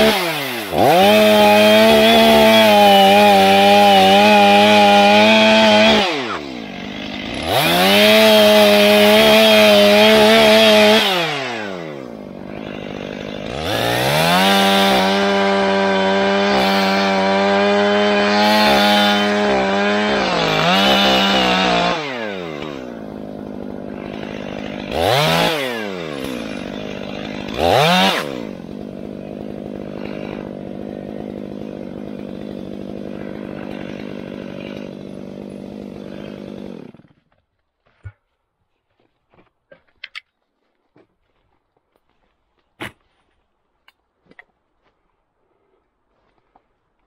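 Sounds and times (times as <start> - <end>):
chainsaw cutting and idling: 0.0 - 37.4.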